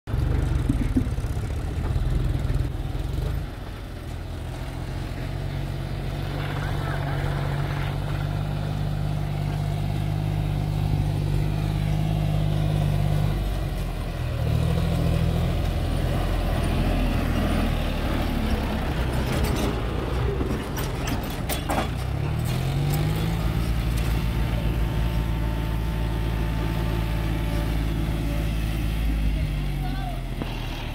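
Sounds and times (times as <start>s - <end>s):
tractor diesel engine: 0.0s - 30.9s
sharp knocks and clatter: 0.1s - 3.5s, 19.0s - 24.3s.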